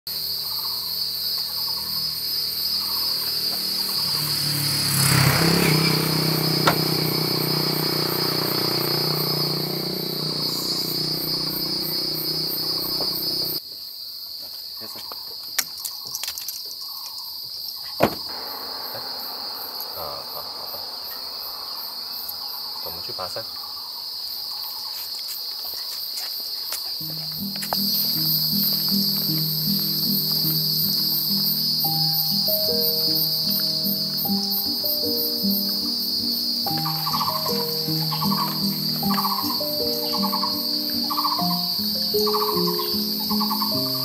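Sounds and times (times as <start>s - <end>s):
insect chorus buzzing: 0.1s - 44.0s
low rumble: 18.3s - 22.8s.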